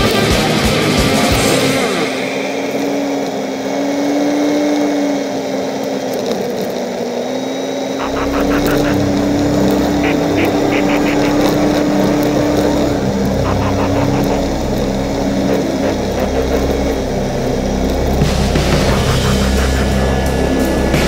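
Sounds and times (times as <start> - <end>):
deep rumble: 8.0 - 21.0
off-road vehicle engine running: 8.0 - 21.0.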